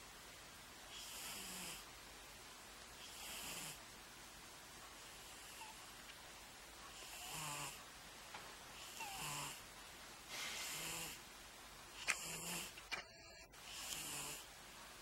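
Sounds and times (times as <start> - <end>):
cat snoring: 0.9 - 1.9, 3.0 - 3.9, 5.0 - 5.9, 6.9 - 7.9, 8.7 - 9.7, 10.3 - 11.3, 12.0 - 14.5.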